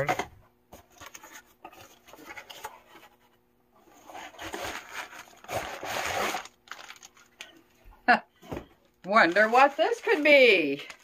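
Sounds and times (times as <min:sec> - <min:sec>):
cardboard and fabric rustling: 0:00.0 - 0:11.0.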